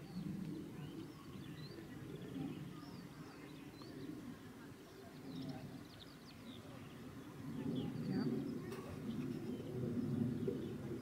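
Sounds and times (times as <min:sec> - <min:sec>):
faint birdsong: 0:00.0 - 0:11.0
low uneven murmur: 0:00.0 - 0:11.0.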